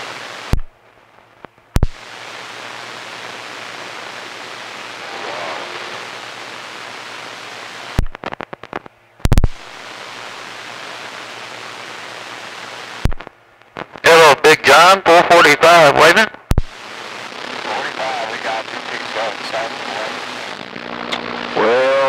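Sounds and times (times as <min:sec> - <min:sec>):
radio static hiss: 0:00.0 - 0:22.0
radio clicks and pops: 0:00.2 - 0:14.3, 0:16.2 - 0:22.0
faint garbled radio voice: 0:14.0 - 0:16.8, 0:17.5 - 0:22.0.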